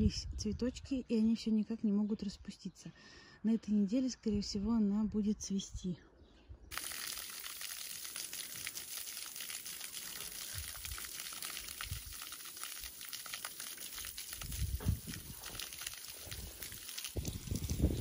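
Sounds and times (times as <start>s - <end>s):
water splashing from garden hose: 6.7s - 18.0s.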